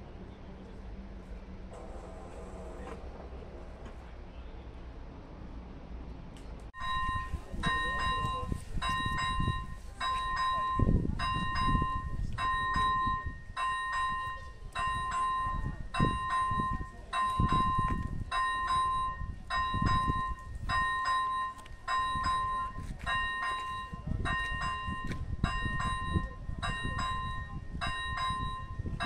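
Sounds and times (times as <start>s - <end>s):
level crossing bell ringing: 6.8s - 29.0s.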